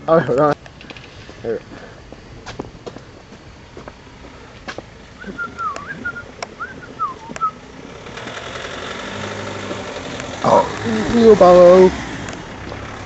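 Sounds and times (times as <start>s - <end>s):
car approaching: 0.0s - 13.0s
person whistling: 5.2s - 7.6s.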